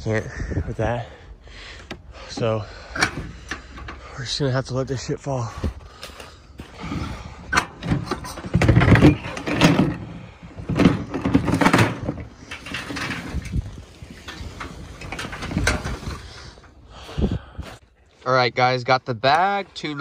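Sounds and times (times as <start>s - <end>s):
junk knocking and rattling: 6.6s - 16.7s.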